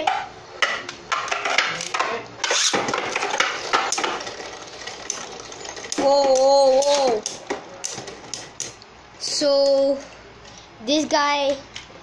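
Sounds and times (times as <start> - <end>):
spinning tops whirring and clattering: 2.4 - 8.8.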